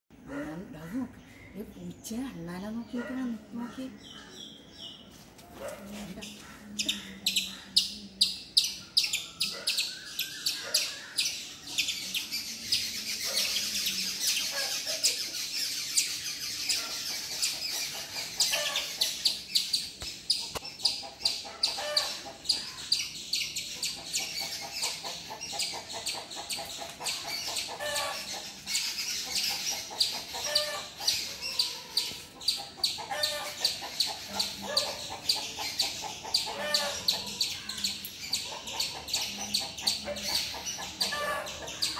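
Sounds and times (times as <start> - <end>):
bird calls: 2.8 - 41.9
fowl clucking: 20.4 - 22.4, 24.0 - 28.6, 29.3 - 37.4, 38.4 - 41.9.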